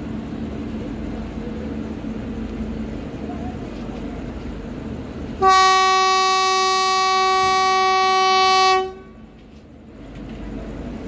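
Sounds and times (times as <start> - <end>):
train horn blast: 5.4 - 9.3.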